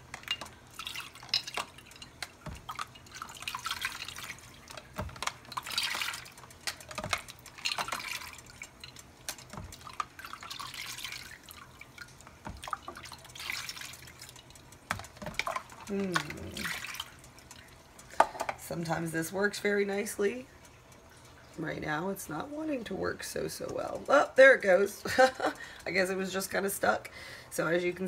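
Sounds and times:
water pouring into plastic tub: 0:00.0 - 0:17.7.

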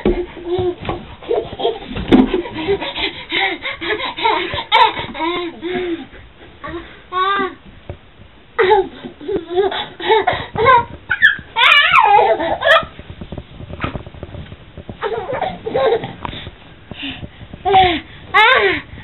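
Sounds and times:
baby squealing and babbling: 0:10.7 - 0:12.9.

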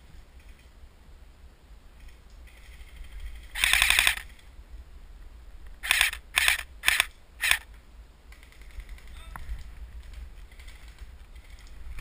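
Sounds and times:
airsoft rifle bursts: 0:03.5 - 0:04.4, 0:05.8 - 0:07.7.

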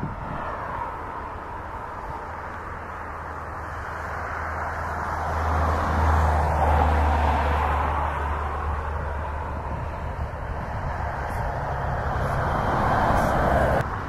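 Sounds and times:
jet engines at taxi power: 0:00.0 - 0:14.0.

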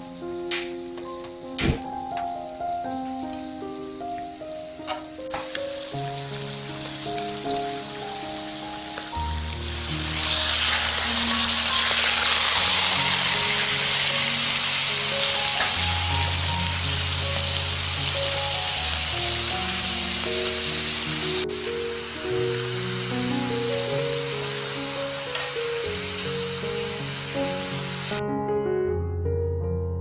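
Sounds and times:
food sizzling in hot fat: 0:00.0 - 0:28.2
sharp click: 0:01.6 - 0:02.2.

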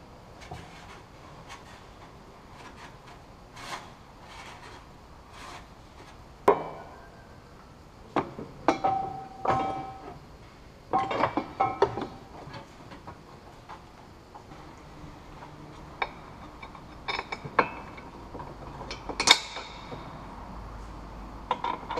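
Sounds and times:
metal heat shield scraping: 0:00.4 - 0:06.2
metal clanks and knocks: 0:06.5 - 0:07.2, 0:08.2 - 0:10.2, 0:10.9 - 0:13.8, 0:15.3 - 0:20.2, 0:21.4 - 0:21.9.

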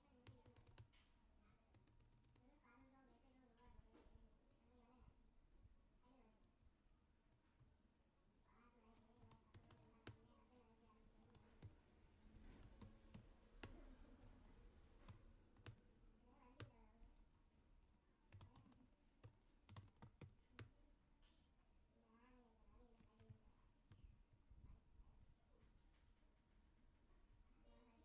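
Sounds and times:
mouse clicks: 0:00.1 - 0:01.1, 0:01.7 - 0:04.0, 0:07.6 - 0:10.4, 0:11.2 - 0:21.4
computer keyboard keystrokes: 0:00.2 - 0:01.0, 0:01.7 - 0:02.5, 0:09.0 - 0:10.3, 0:11.2 - 0:15.8, 0:18.3 - 0:20.8.

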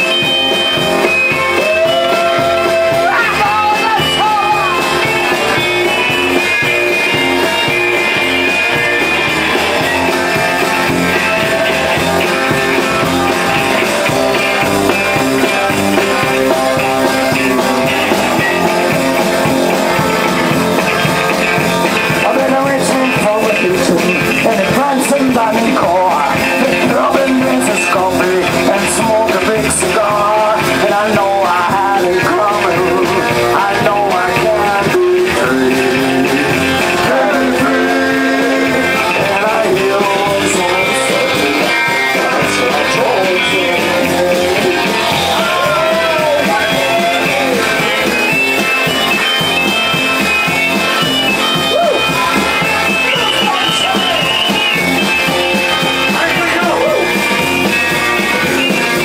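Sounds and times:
rock band playing: 0:00.0 - 0:59.0
man singing: 0:01.5 - 0:05.7, 0:22.0 - 0:48.4, 0:55.8 - 0:59.0.

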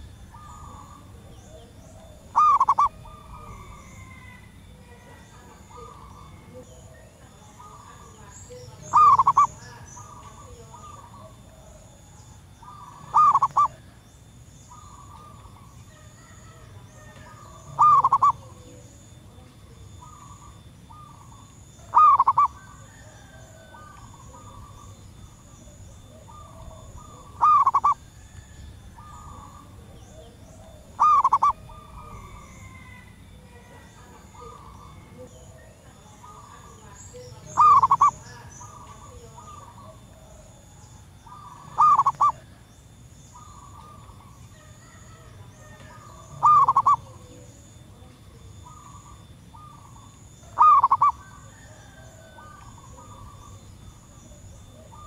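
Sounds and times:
dove cooing: 0:00.0 - 0:55.0
faint bird calls: 0:00.0 - 0:55.0.

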